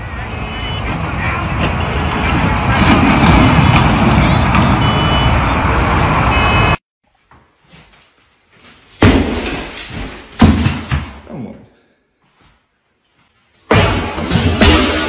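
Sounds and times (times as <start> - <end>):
sledgehammer striking plaster wall: 9.0 - 11.3, 13.7 - 15.0.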